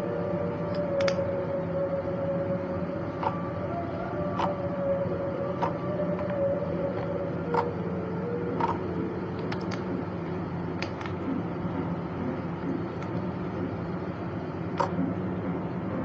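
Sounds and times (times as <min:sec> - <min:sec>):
steady background hum: 0:00.0 - 0:16.0
clay clicks and pops: 0:00.7 - 0:01.2.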